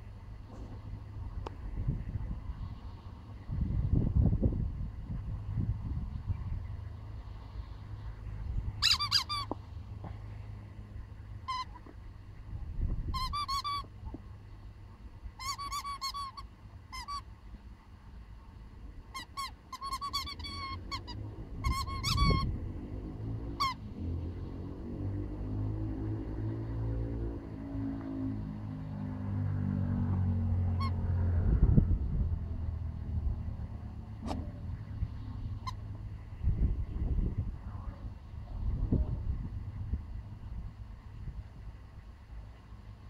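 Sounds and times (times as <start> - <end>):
rubber toy chicken squeaking: 8.8 - 9.6, 11.5 - 11.8, 13.1 - 13.9, 15.4 - 17.3, 19.1 - 22.5.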